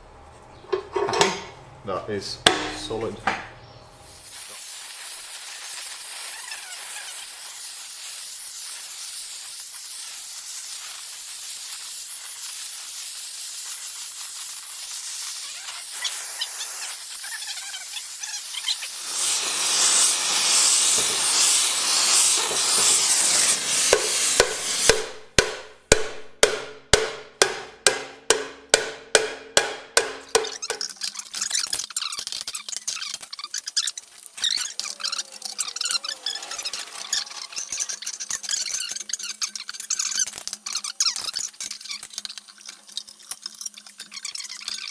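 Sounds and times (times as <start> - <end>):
torch flame hissing: 4.0 - 25.4, 30.6 - 42.2.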